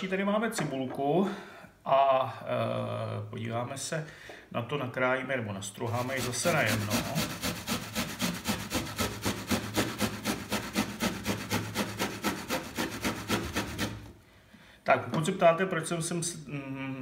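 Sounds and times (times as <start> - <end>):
onion grated on metal grater: 5.8 - 14.1.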